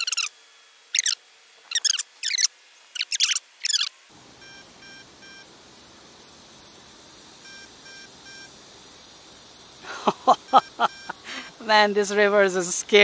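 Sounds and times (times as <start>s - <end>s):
steady hiss: 0.0s - 13.0s
scratchy rasps: 0.9s - 3.9s.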